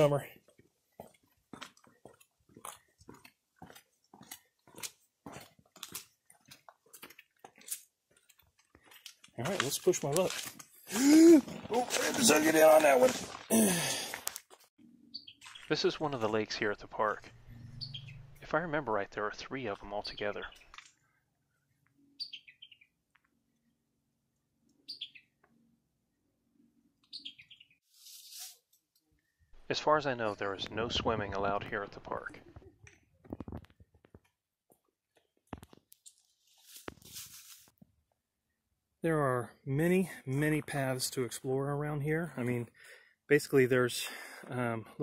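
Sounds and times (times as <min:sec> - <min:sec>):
footsteps crunching on sand: 0:01.0 - 0:10.8, 0:36.5 - 0:37.7
songbird singing: 0:15.0 - 0:15.7, 0:17.4 - 0:18.5, 0:21.7 - 0:23.0, 0:24.7 - 0:25.7, 0:27.0 - 0:27.8.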